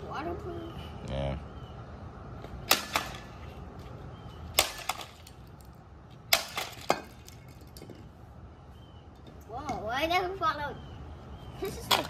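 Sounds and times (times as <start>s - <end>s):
pieces bouncing on concrete: 4.6s - 8.1s, 11.7s - 12.0s.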